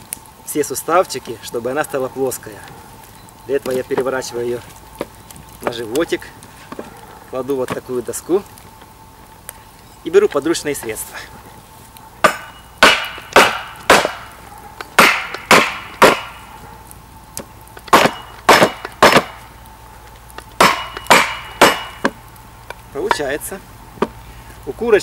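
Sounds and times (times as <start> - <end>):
axe striking wooden board: 12.2 - 14.2, 15.0 - 16.3, 17.9 - 19.4, 20.6 - 22.2.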